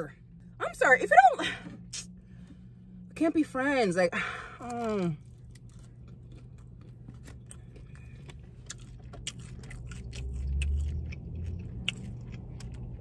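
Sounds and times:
chewing crunchy food: 0:04.6 - 0:13.0.

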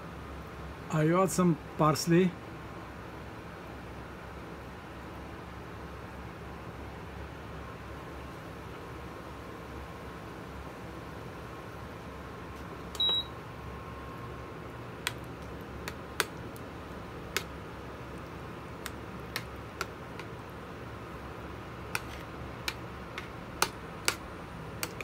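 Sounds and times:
short electronic beep: 0:13.0 - 0:13.3.

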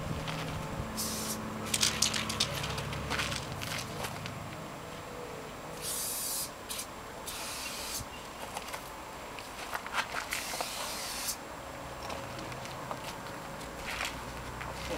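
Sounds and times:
spray paint can hissing: 0:01.0 - 0:01.4, 0:05.8 - 0:08.0, 0:10.3 - 0:11.4.

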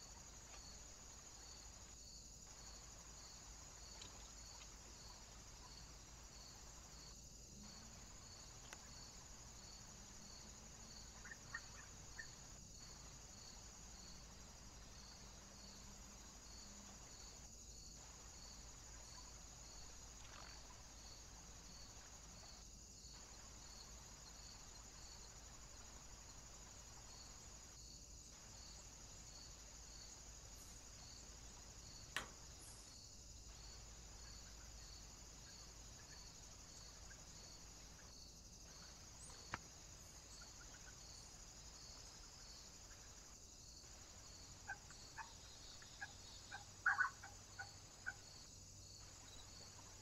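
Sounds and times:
faint steady hiss: 0:00.0 - 0:50.0
small birds calling: 0:44.6 - 0:48.3.

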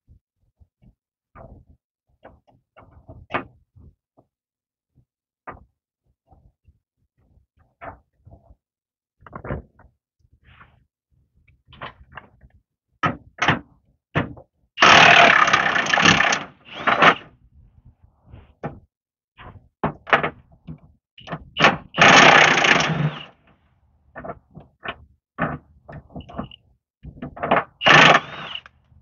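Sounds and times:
impact wrench running: 0:14.8 - 0:17.2, 0:21.9 - 0:23.3, 0:27.8 - 0:28.7.

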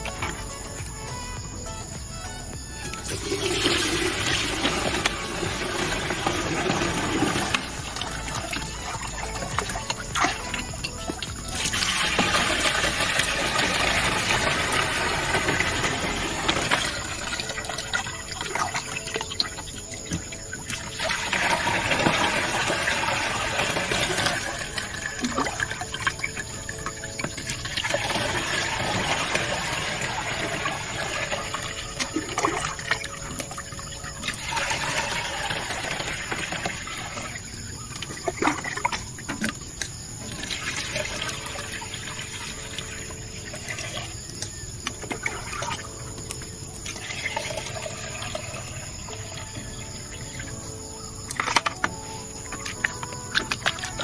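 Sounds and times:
water pouring and splashing into tank: 0:02.8 - 0:54.0
bucket clicks and knocks: 0:02.9 - 0:42.8, 0:43.5 - 0:48.6, 0:51.2 - 0:54.0.

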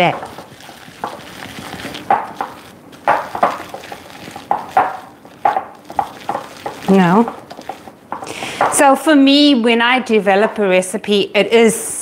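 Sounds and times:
dough stirring in glass bowl: 0:00.0 - 0:08.9.

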